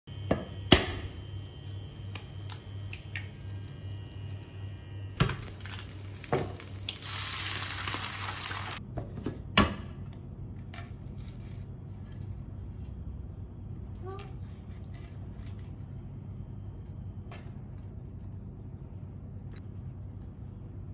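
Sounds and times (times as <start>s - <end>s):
pulsing hob hum: 0.1s - 7.0s
egg sizzling: 1.1s - 8.8s
egg cracking: 5.2s - 8.8s.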